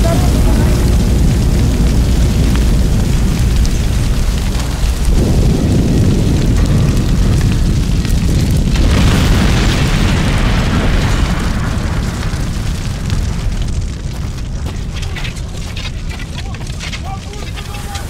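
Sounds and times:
rumble of flames and blasts: 0.0s - 18.0s
rushing hiss: 17.0s - 18.0s.

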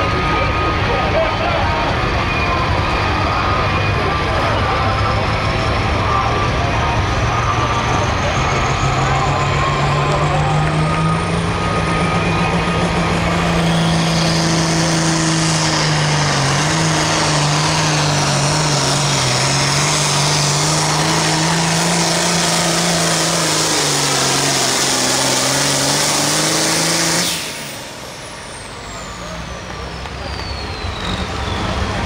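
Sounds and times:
tractor engine running at high revs: 0.0s - 32.0s.

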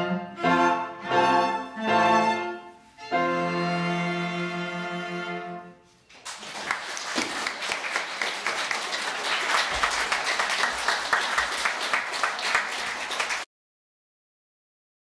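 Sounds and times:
audience applauding: 6.1s - 13.5s.

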